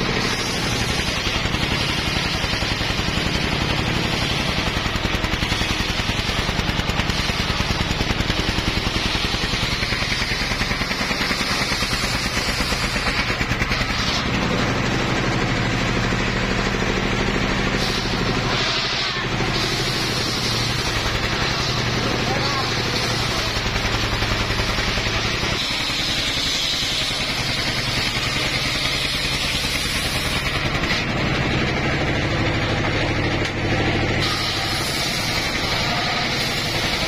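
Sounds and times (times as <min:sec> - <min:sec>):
circular saw blade hissing through wood: 0:00.0 - 0:31.1, 0:32.1 - 0:37.0
engine running under load: 0:00.0 - 0:37.0.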